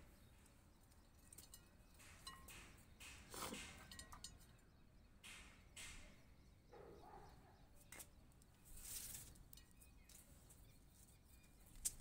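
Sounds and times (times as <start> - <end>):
gritty soil rustling into pot: 7.9 - 12.0.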